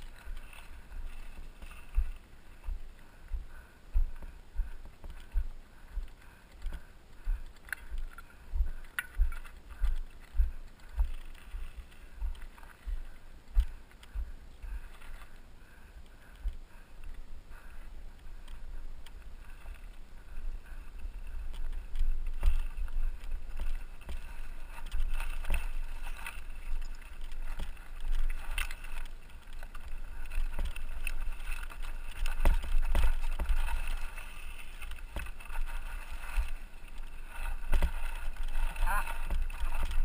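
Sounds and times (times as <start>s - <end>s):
bike crunching over gravel: 21.6s - 40.0s.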